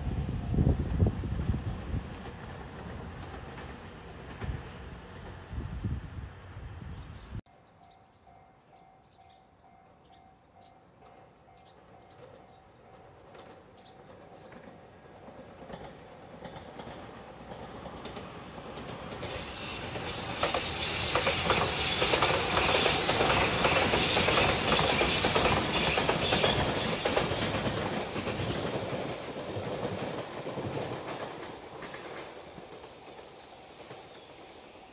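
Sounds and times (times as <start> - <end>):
train wheels clattering: 11.0 - 34.8
high hiss: 19.2 - 25.4.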